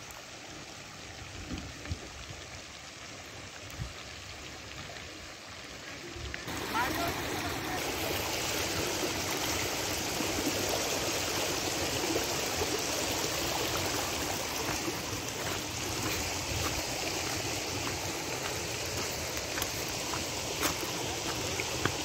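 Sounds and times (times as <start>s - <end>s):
flood water rushing: 0.0s - 22.0s.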